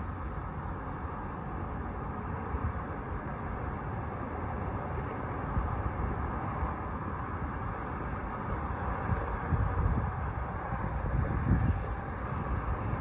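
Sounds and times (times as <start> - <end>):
distant city hum: 0.0 - 13.0
wind rumbling on microphone: 0.0 - 13.0.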